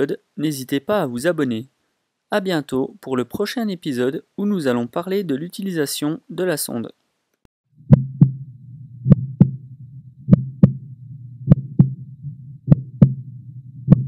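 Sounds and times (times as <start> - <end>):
heartbeat double thump: 7.8 - 14.0
steady low drone: 7.8 - 14.0.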